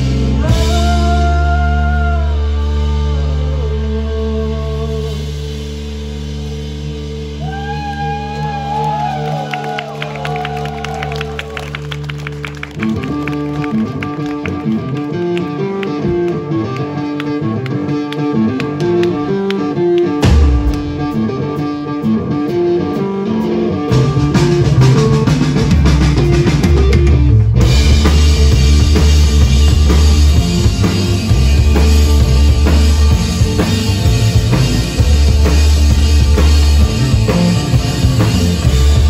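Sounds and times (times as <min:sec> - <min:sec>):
heavy low bass: 0:00.0 - 0:09.4, 0:17.4 - 0:39.0
rock band playing: 0:00.0 - 0:39.0.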